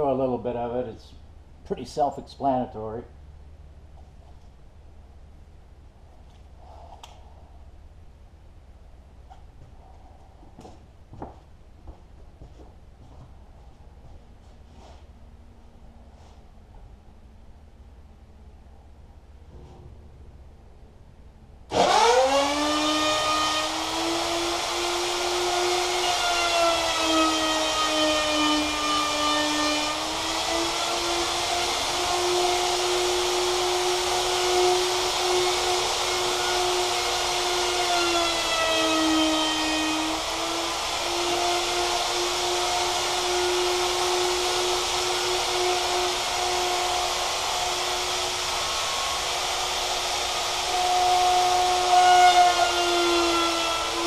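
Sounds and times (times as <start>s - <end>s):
wood router whining: 21.7s - 54.0s.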